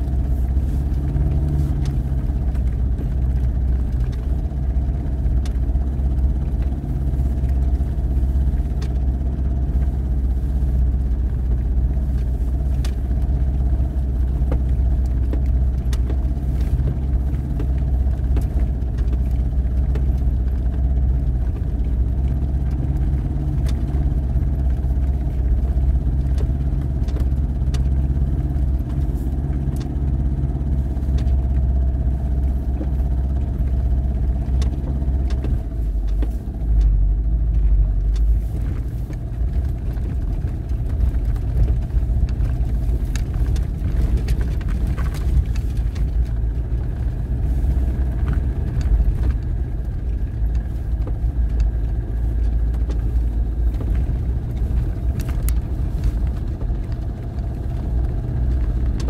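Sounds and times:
vehicle engine running at low speed: 0:00.0 - 0:59.0
light clicks and knocks: 0:00.1 - 0:59.0.

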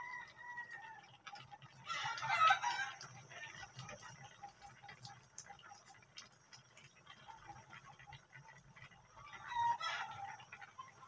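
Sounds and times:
chicken clucking: 0:09.1 - 0:11.0.

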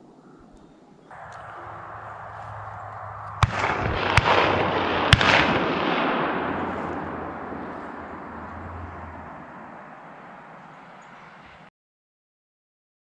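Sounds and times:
broad rushing noise: 0:01.1 - 0:11.7
shotgun shots: 0:01.2 - 0:10.4.

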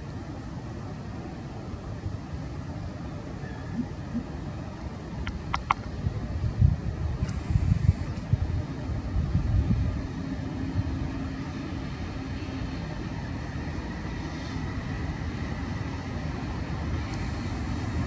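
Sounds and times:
faint high whine: 0:00.0 - 0:18.0
faint steady hum: 0:00.0 - 0:18.0
train wheels rumbling on rail: 0:05.1 - 0:18.0.

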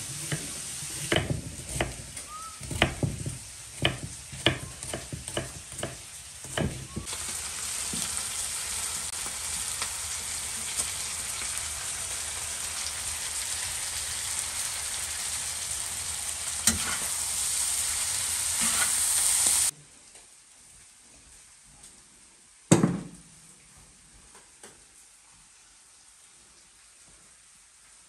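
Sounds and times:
food sizzling on hot iron: 0:00.0 - 0:19.7
metal spatula scraping iron: 0:16.6 - 0:17.2, 0:18.6 - 0:19.2.

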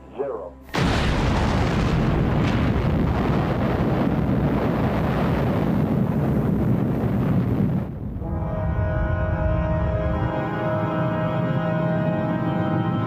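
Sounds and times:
explosion rumbling roar: 0:00.7 - 0:10.5.

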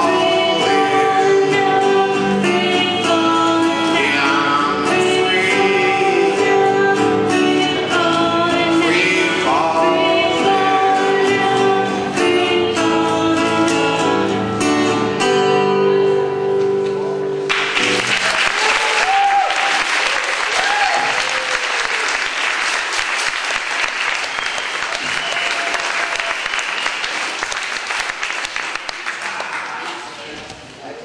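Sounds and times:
acoustic guitars strumming: 0:00.0 - 0:18.2
audience applause: 0:17.5 - 0:30.2
whoops and cheers: 0:18.2 - 0:22.3, 0:24.4 - 0:26.7.

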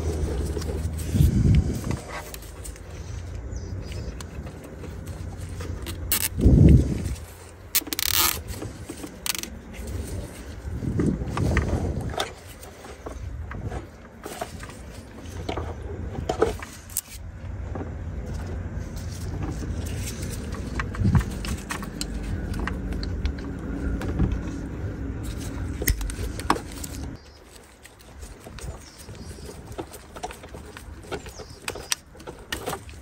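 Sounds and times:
steady low engine rumble: 0:00.0 - 0:33.0.

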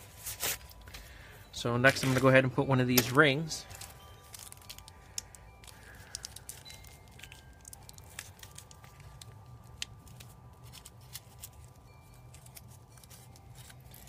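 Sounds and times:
low steady hum: 0:00.0 - 0:14.0
small clip clicking and crinkling: 0:02.9 - 0:14.0.

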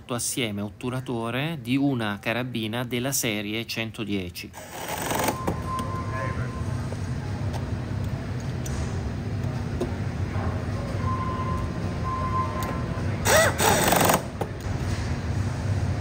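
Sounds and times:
low factory hum: 0:00.0 - 0:16.0
pneumatic tool whirring: 0:04.6 - 0:05.6, 0:13.2 - 0:14.5.

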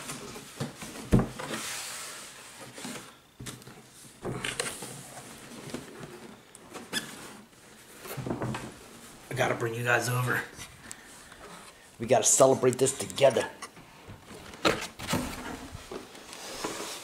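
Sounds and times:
cardboard flaps scraping and rustling: 0:00.0 - 0:09.2, 0:14.1 - 0:17.0.

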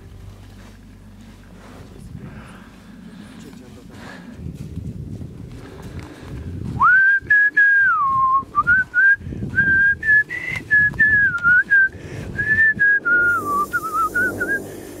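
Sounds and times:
footsteps in dry leaves: 0:00.0 - 0:06.8
person whistling a tune: 0:06.8 - 0:14.7.

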